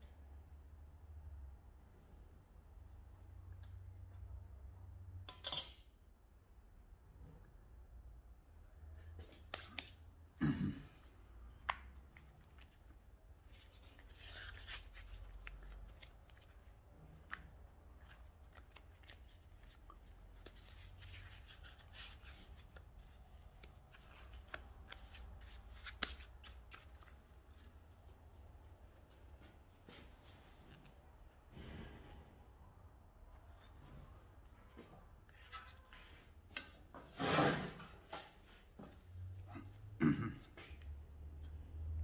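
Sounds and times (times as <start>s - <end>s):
metal fittings clinking on steel: 5.3s - 5.8s
gloves rustling: 11.6s - 31.9s.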